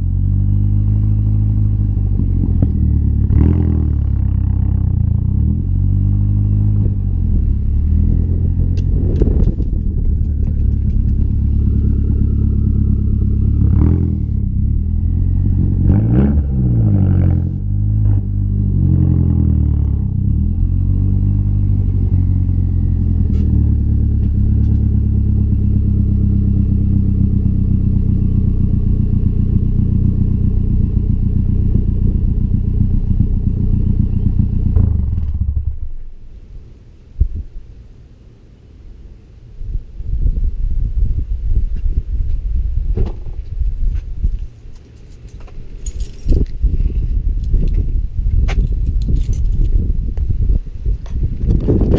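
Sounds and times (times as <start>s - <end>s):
car exhaust note: 0.0s - 37.6s.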